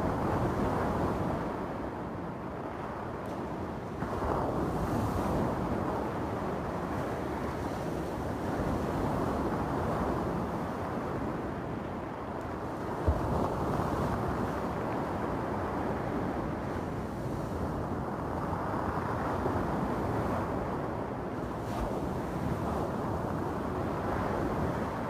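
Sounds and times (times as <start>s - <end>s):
wind on microphone: 0.0s - 25.0s.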